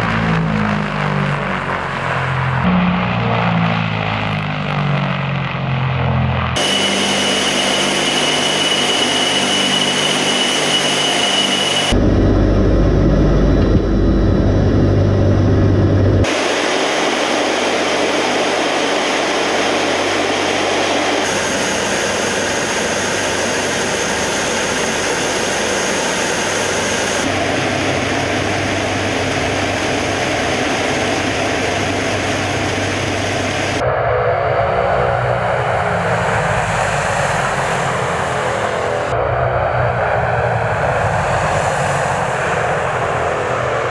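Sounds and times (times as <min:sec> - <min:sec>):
aircraft propeller engines droning: 0:00.0 - 0:43.9
thin steady whine: 0:06.6 - 0:43.9
deep loud rumble: 0:11.9 - 0:16.4.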